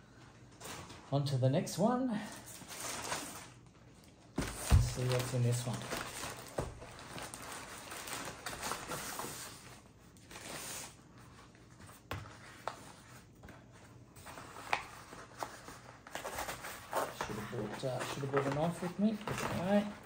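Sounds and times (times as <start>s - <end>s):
packaging rustling and crackling: 2.3s - 11.6s, 14.2s - 20.0s.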